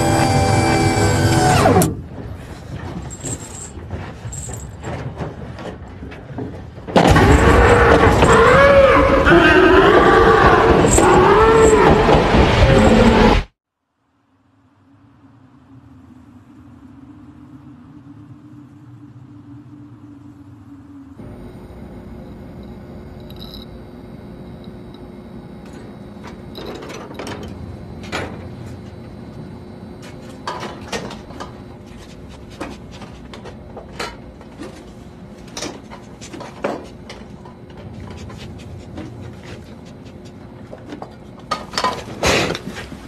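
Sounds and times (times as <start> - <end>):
steady low hum: 14.1 - 43.0.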